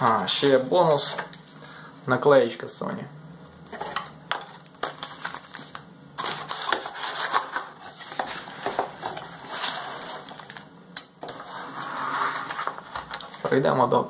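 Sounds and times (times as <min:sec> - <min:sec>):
packaging rustling and crinkling: 0:03.7 - 0:13.6.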